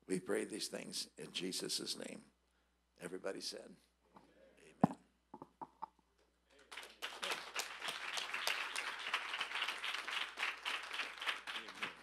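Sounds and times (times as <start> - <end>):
congregation clapping: 6.6 - 12.0.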